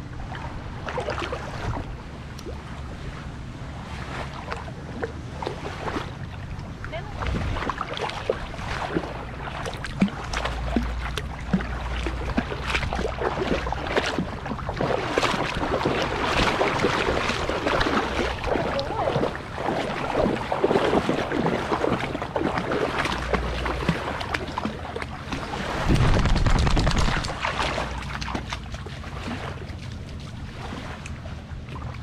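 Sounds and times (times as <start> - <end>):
water sloshing around dog's legs: 0.2 - 32.0
wind buffeting microphone: 6.7 - 7.9, 25.3 - 28.0.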